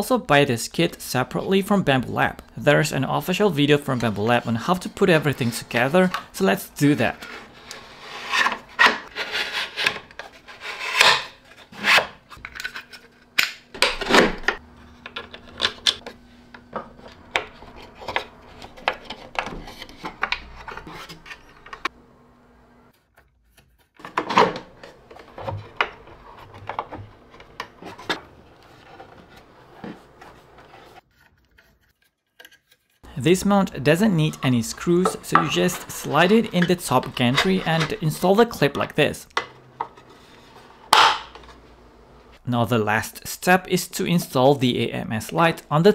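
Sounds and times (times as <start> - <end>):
plastic rubbing and scraping: 3.3 - 21.9, 23.7 - 33.1, 33.7 - 41.7.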